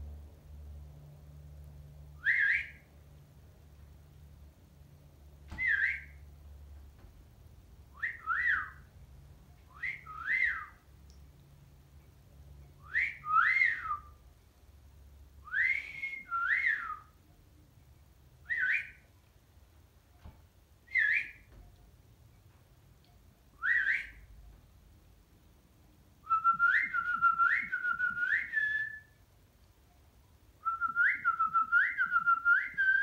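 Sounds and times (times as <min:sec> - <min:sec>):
whistled phrase: 0:02.2 - 0:02.8, 0:05.6 - 0:06.2, 0:08.0 - 0:08.8, 0:09.7 - 0:10.8, 0:12.8 - 0:14.2, 0:15.4 - 0:17.1, 0:18.5 - 0:19.0, 0:20.9 - 0:21.5, 0:23.6 - 0:24.2, 0:26.2 - 0:29.2, 0:30.6 - 0:33.0.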